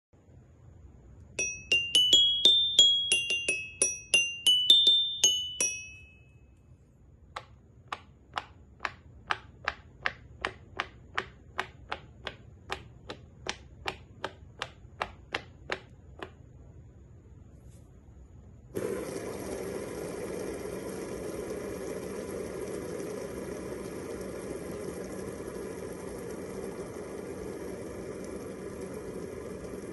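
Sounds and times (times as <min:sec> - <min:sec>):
toy xylophone notes: 0:01.4 - 0:06.6
pop-it toy pops: 0:07.3 - 0:16.4.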